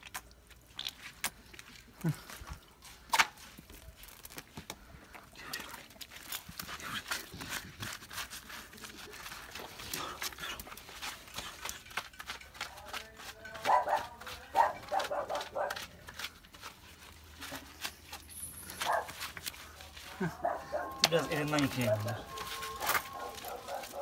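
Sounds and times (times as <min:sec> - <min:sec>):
dog crying high-pitched: 0:20.3 - 0:24.0.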